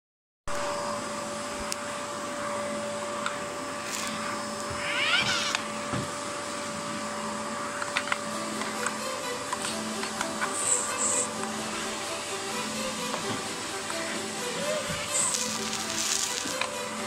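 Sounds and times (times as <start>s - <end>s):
steady hum with constant tone: 0.5s - 17.0s
short wavering cry: 4.8s - 5.7s.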